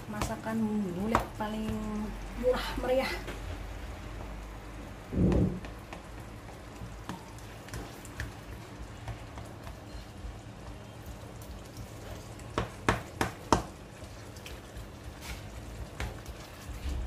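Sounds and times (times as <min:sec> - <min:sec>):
sauce sizzling in a pan: 0:05.8 - 0:17.0.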